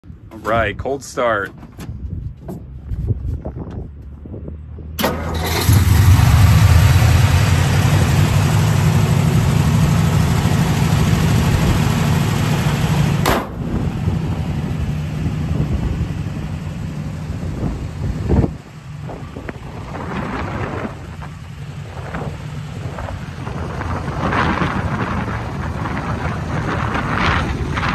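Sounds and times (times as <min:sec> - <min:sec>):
engine cranking and idling: 0:05.0 - 0:13.2.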